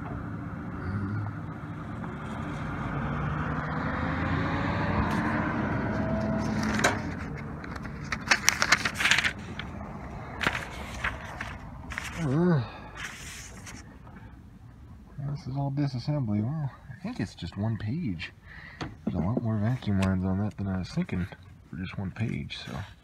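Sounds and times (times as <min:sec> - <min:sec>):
passing vehicle engine and tyres: 0:00.0 - 0:13.8.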